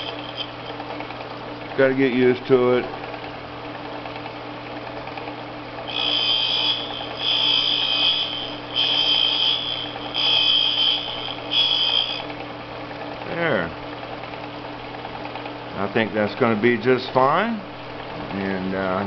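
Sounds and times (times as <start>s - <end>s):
grinder motor hum: 0.0s - 4.2s, 5.1s - 12.5s
high-pitched hiss of dressing tool: 5.9s - 12.2s.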